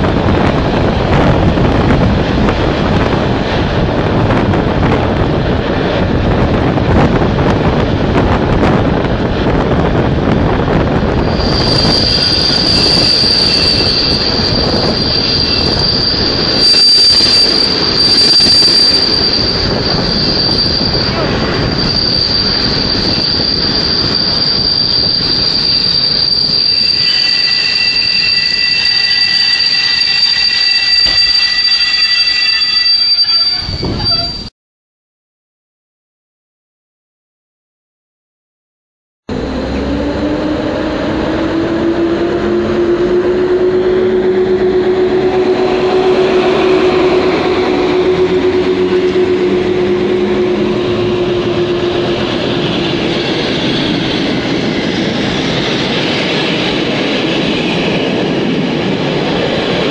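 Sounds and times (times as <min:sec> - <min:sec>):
train rolling rumble: 0:00.0 - 0:34.5, 0:39.3 - 0:59.9
lower squeal: 0:08.9 - 0:34.5, 0:39.3 - 0:59.9
high-pitched brake squeal: 0:11.1 - 0:34.5, 0:39.4 - 0:58.3.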